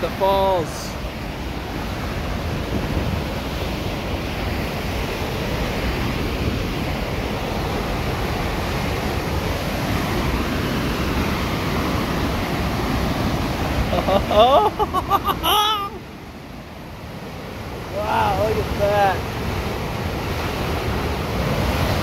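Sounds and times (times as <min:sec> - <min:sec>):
whitewater rushing over waterfall: 0:00.0 - 0:22.0
wind rumbling on microphone: 0:00.9 - 0:14.2.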